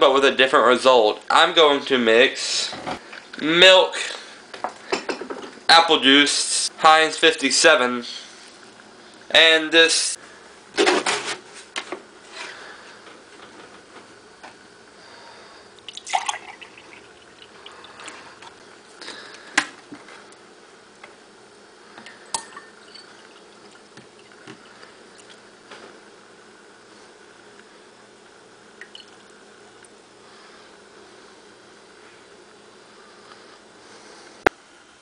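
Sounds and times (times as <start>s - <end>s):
liquid pouring and splashing: 15.9s - 18.6s.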